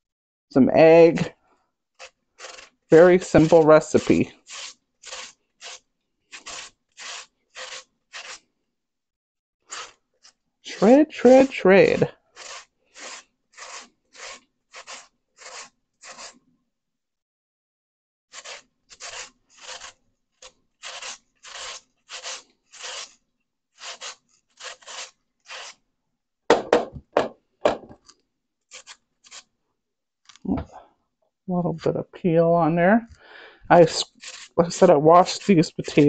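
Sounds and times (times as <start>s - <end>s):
potato scraping on grater: 2.0s - 8.5s, 9.7s - 16.4s, 18.3s - 25.8s, 28.0s - 29.5s, 33.7s - 36.0s
knocks: 26.5s - 28.0s.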